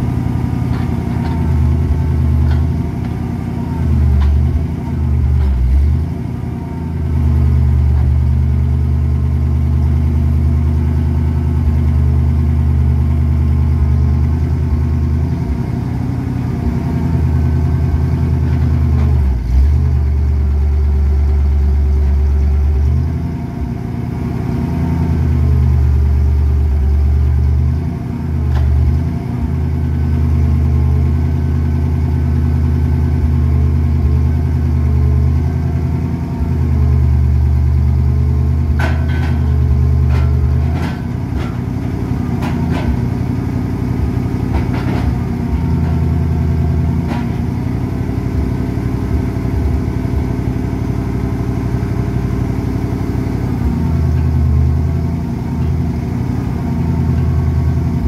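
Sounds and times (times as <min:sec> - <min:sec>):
truck engine running: 0:00.0 - 0:58.0
logs knocking and clanking: 0:00.6 - 0:03.2, 0:38.7 - 0:43.2, 0:44.4 - 0:47.6.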